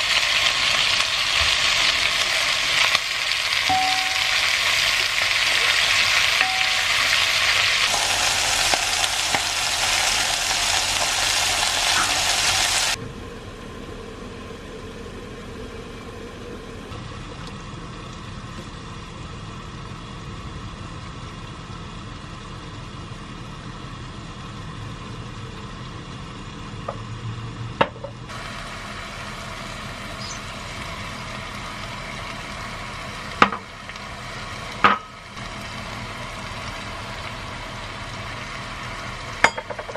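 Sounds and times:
food sizzling in a pot: 0.0s - 13.0s, 28.3s - 39.9s
pot of spaghetti boiling: 0.0s - 27.3s, 28.3s - 39.9s.

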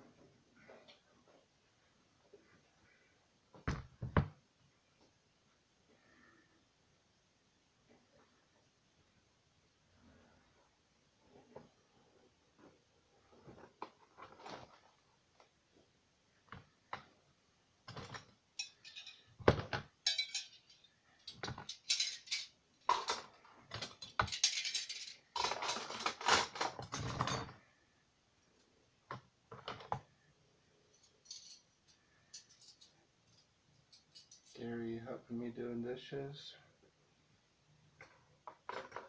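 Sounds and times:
dishes and wire rack rattling: 17.9s - 27.6s.

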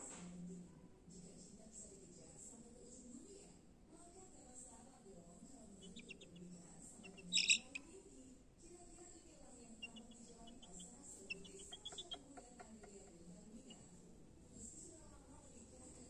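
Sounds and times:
faint background voices: 0.0s - 16.0s
chick peeping: 5.8s - 7.8s, 9.8s - 12.9s.

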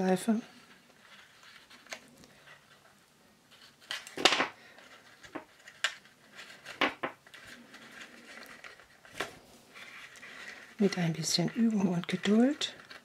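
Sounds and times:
cardstock and ribbon rustling: 0.0s - 13.0s.

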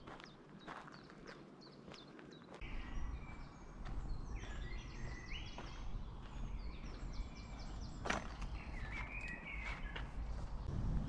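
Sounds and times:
songbirds singing: 0.0s - 10.9s
footsteps on dry dirt path: 0.0s - 11.0s
steady low rumble: 10.0s - 11.0s.

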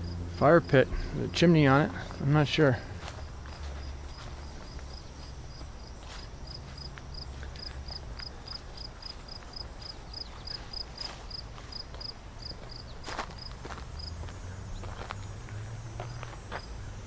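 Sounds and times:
insect chirping: 0.0s - 17.0s
soft footsteps on grass: 0.9s - 16.8s.

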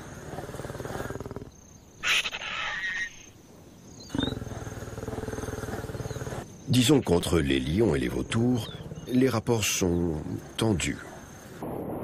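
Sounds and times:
lioness growling: 0.0s - 1.6s, 4.0s - 11.6s
lioness snarl: 0.0s - 3.0s, 4.1s - 6.5s.

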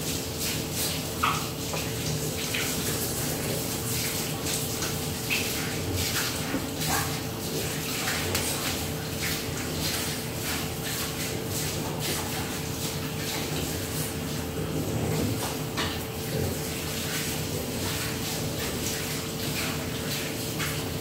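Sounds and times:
towel rubbing wet dog: 0.0s - 21.0s.

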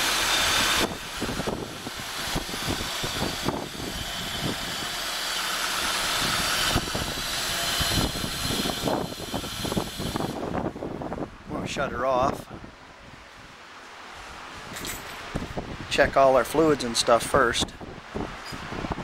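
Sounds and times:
car engine idling: 0.0s - 8.5s
engine hiss: 0.0s - 11.1s.

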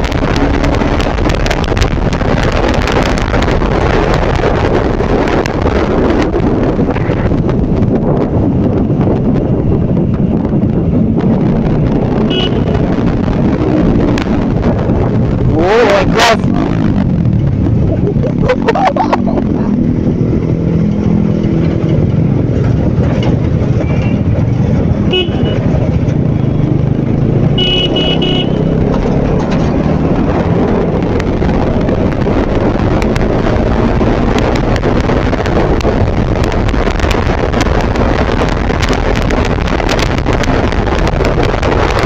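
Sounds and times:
motorcycle engine running: 0.0s - 42.0s
wind rushing over microphone: 0.0s - 42.0s
vehicle horns tooting: 12.3s - 12.8s, 25.1s - 25.7s, 27.6s - 28.7s.

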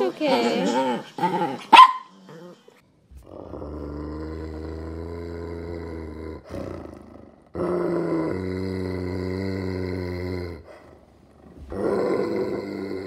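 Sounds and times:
dog growling low: 0.4s - 13.0s
small dog barking: 1.7s - 2.1s.

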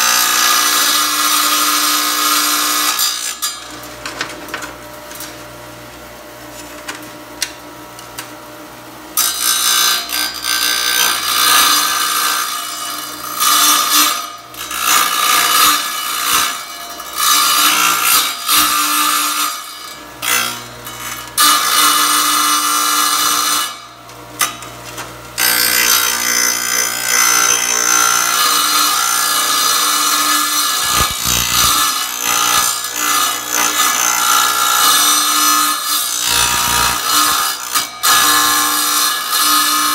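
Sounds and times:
saw blade grinding tile: 0.0s - 3.9s, 9.2s - 39.9s
tile saw motor humming: 11.4s - 39.3s.

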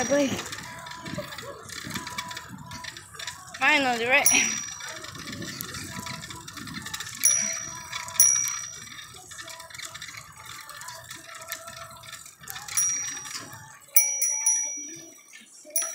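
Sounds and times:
low rumble of riding: 0.0s - 14.8s
bicycle bell dinging: 4.1s - 5.4s, 7.2s - 9.2s, 12.7s - 15.9s.

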